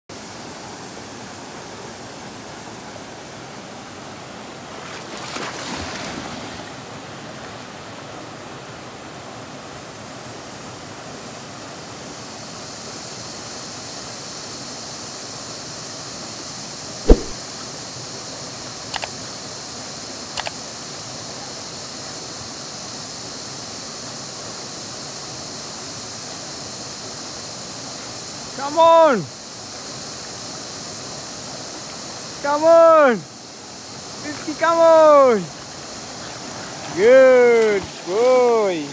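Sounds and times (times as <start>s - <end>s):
loud sharp knock: 17.1s - 17.4s
faint clicks: 18.9s - 19.2s.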